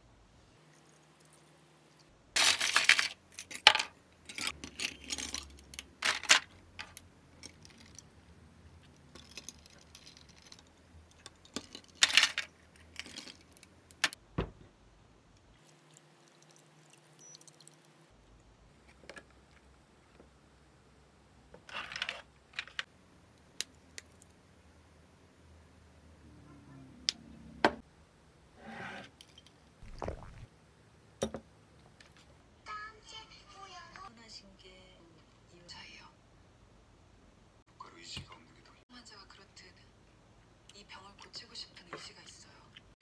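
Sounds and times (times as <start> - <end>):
ice cubes clattering in plastic bin: 2.4 - 3.8.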